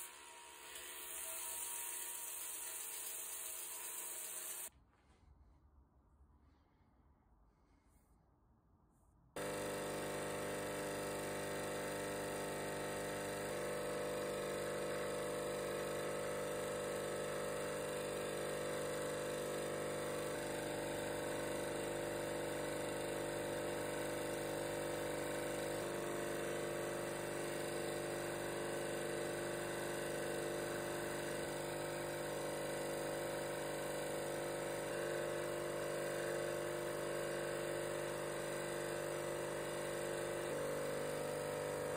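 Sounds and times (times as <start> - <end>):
bench grinder humming: 9.4 - 41.9.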